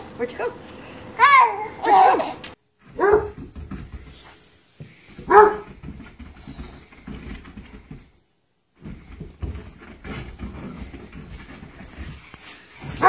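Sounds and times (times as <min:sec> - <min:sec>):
soft scuffs and knocks: 0:02.8 - 0:08.2, 0:08.8 - 0:13.0
dog yelping barks: 0:03.0 - 0:03.4, 0:05.3 - 0:05.6.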